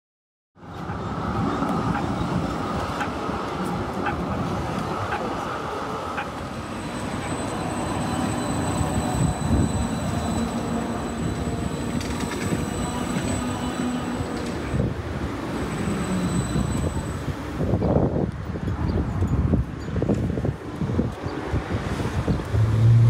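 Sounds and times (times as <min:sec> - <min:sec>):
tram rolling on rails: 0:00.6 - 0:23.0
thin high whine: 0:06.5 - 0:14.9.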